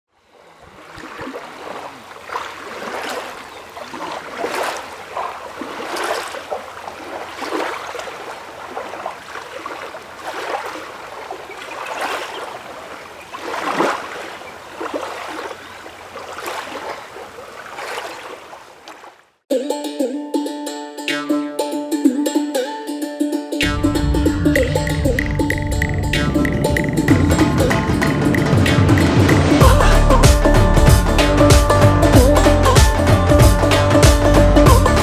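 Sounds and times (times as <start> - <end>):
rush of moving water: 0.1 - 19.4
water splashing and lapping: 0.1 - 19.4, 23.6 - 35.0.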